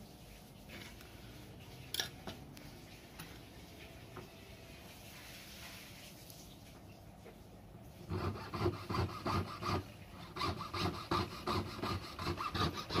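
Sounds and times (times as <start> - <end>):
hand tool rasping strokes: 8.1 - 13.0.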